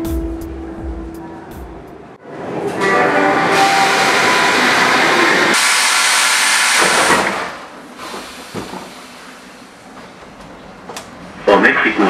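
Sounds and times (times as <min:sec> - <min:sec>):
train car rumble: 0:00.0 - 0:12.0
train rushing hiss: 0:02.4 - 0:10.1.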